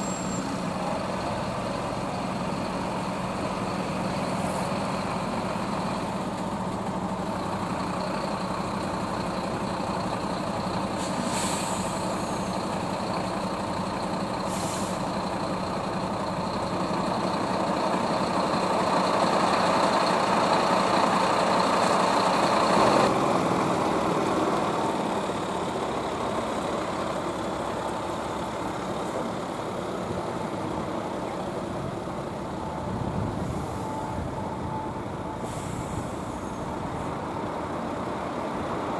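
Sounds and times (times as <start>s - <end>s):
diesel trucks driving past: 0.0s - 38.9s
truck air brake hisses: 10.9s - 12.6s, 14.3s - 15.3s, 35.4s - 37.1s.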